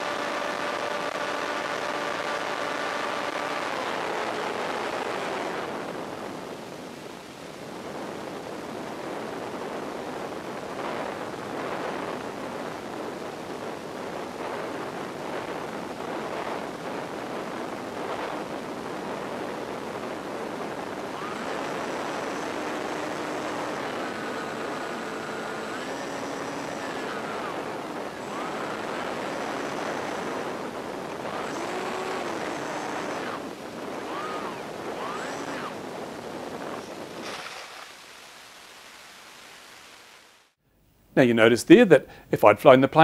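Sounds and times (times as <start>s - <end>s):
plane motor whine: 0.0s - 6.6s, 13.2s - 38.0s
steady rushing hiss: 0.0s - 40.6s.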